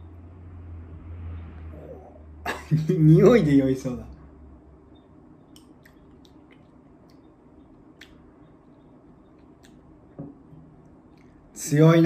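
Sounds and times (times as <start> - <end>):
low room hum: 0.0 - 12.0
wet mouth clicks: 5.5 - 8.5, 9.3 - 9.9.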